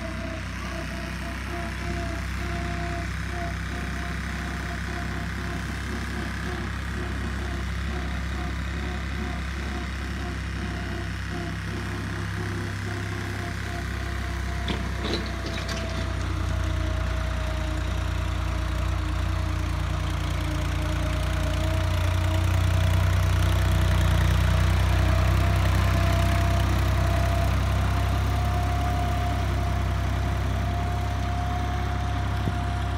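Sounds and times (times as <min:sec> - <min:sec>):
tractor engine running: 0:00.0 - 0:32.9.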